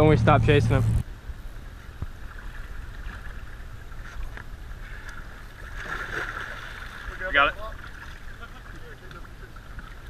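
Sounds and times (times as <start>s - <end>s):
wind: 0.0s - 10.0s
shallow water splashing: 2.1s - 10.0s.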